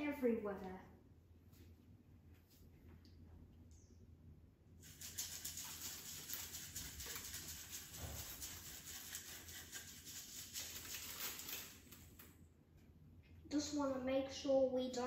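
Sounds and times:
confetti pattering on plastic and tile: 4.8 - 12.2.

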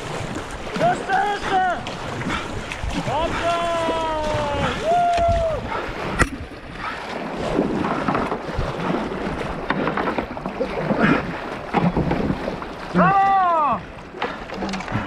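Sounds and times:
kayak paddle strokes: 0.0 - 15.0
river current splashing: 0.0 - 15.0
wind on microphone: 2.1 - 12.6.

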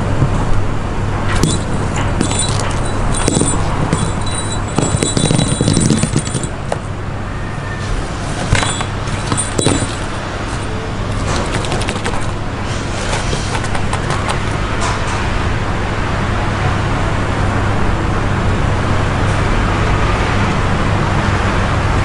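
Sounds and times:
steady low hum: 0.0 - 15.9
toy ball jingling: 1.4 - 6.9, 8.4 - 12.5, 13.1 - 14.6.

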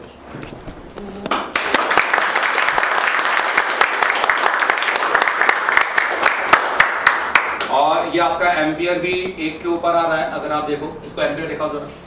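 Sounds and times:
people clapping: 1.0 - 7.8.

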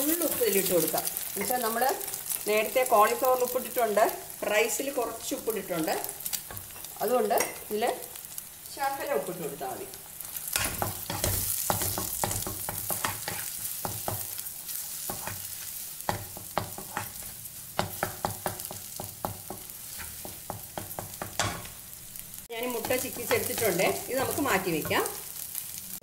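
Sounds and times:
eggs sizzling in a pan: 0.0 - 26.0
spatula scraping and tapping pan: 10.4 - 21.8.

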